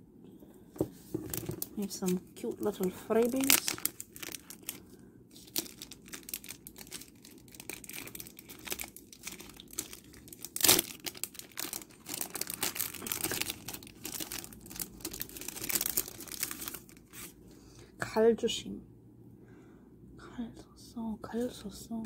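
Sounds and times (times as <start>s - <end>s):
plastic sleeve crinkling: 1.0s - 17.4s.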